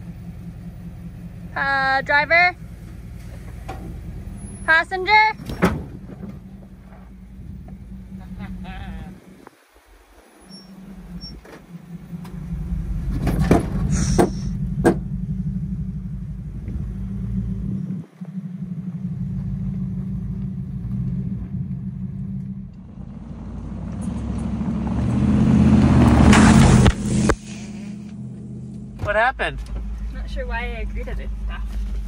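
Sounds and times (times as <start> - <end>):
truck engine running: 0.0 - 32.0
sharp knocks: 13.2 - 15.1
tyres on gravel: 23.6 - 32.0.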